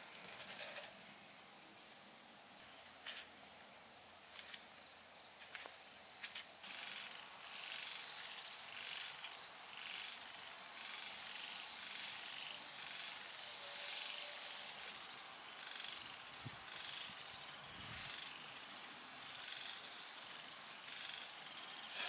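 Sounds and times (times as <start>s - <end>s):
skewers sizzling on grill: 7.2s - 15.0s, 18.6s - 22.0s.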